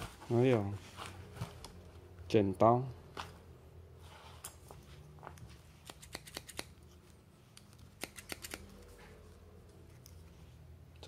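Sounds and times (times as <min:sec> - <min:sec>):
scissors clicking: 0:05.8 - 0:06.8, 0:07.5 - 0:08.8.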